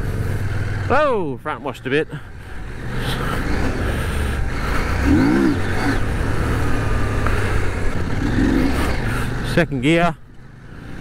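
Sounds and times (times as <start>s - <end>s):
gravel noise: 0.0s - 11.0s
motorcycle engine running: 0.0s - 11.0s.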